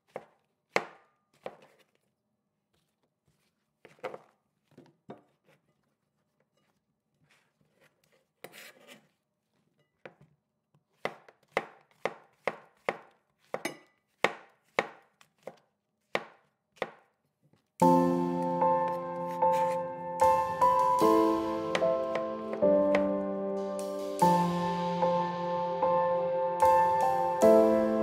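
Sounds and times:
knife chopping on wooden board: 0.0s - 2.0s, 10.9s - 17.1s, 18.8s - 19.8s
music: 17.8s - 28.0s.

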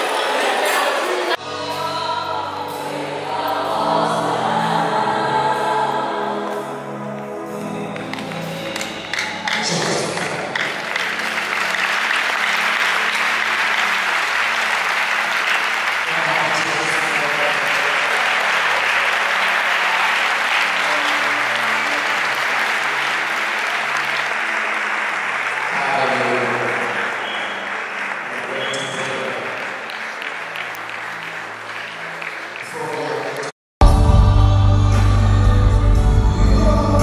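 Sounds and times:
crowd applauding: 7.8s - 33.6s
band holding low notes: 33.8s - 37.0s.

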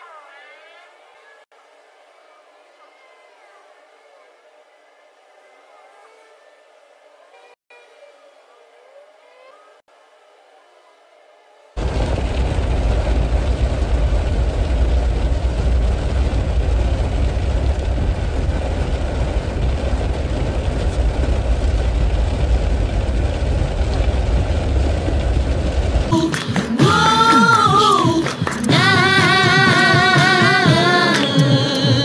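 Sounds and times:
car cabin rumble and rain hiss: 11.8s - 32.0s
music: 26.1s - 32.0s.

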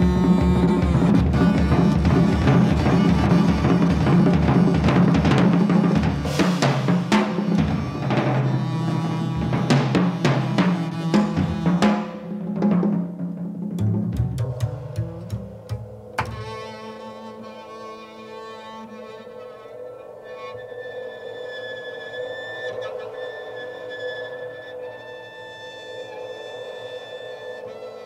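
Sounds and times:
double bass held notes: 0.0s - 5.4s
jazz drum kit playing: 0.0s - 16.8s.

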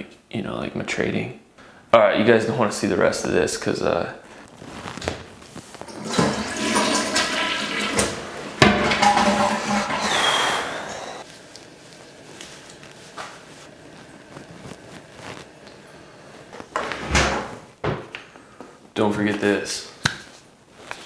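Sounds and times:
toilet flushing: 5.8s - 11.2s
gurgling whistle: 9.7s - 11.2s.

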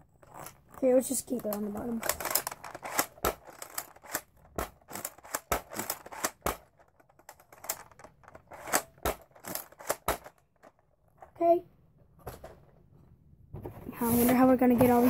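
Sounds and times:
plastic toy gun clicking: 1.4s - 10.7s.

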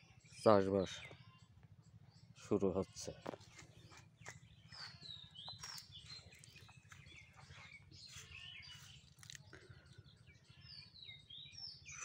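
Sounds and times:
small birds chirping and whistling: 0.0s - 2.7s, 3.4s - 12.0s.

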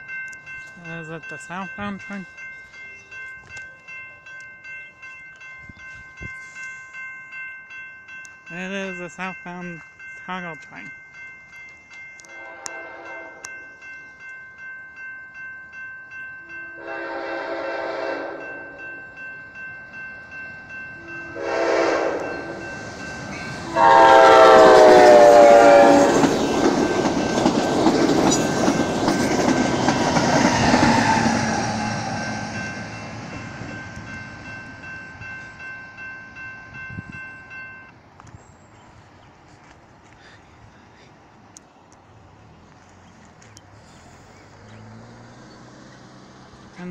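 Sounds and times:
crossing bell dinging: 0.0s - 38.9s
train horn blasts: 12.3s - 13.5s, 16.8s - 18.9s, 21.0s - 22.7s, 23.7s - 26.2s
train wheels rumbling on rails: 17.5s - 37.3s.

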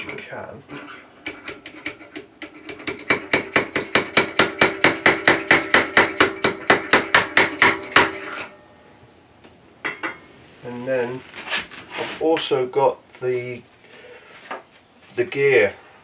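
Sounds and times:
metal-on-metal hammer strikes: 1.2s - 8.8s.

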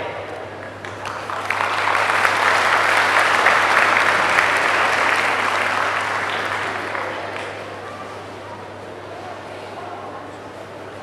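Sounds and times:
audience applauding: 0.8s - 7.8s.

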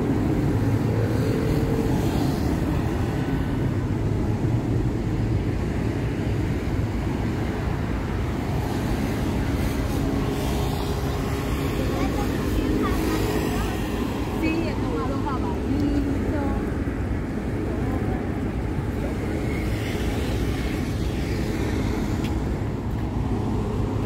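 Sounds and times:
train car rumbling in motion: 0.0s - 24.0s.

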